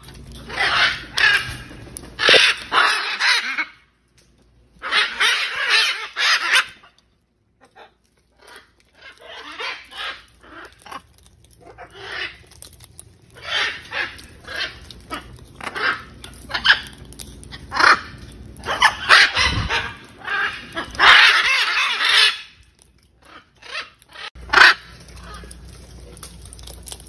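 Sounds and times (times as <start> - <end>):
macaws squawking: 0.4 - 3.9, 4.8 - 7.0, 7.7 - 11.0, 11.6 - 22.6, 23.2 - 25.6.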